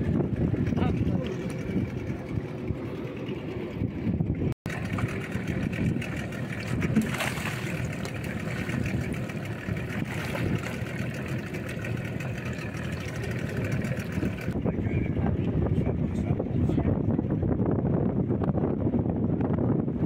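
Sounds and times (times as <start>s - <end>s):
outboard motor idling: 0.0s - 18.6s
water splashing: 4.7s - 14.6s.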